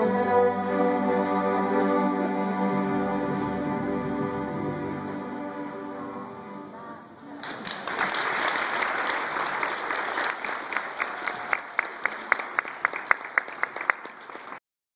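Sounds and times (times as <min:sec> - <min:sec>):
strings piece: 0:00.0 - 0:07.4
audience applauding: 0:07.4 - 0:14.6.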